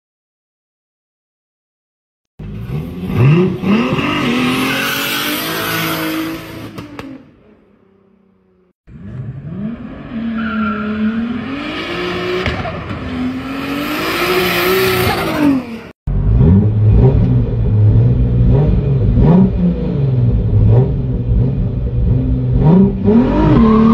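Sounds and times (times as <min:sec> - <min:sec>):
car engine accelerating hard: 0:08.9 - 0:23.9.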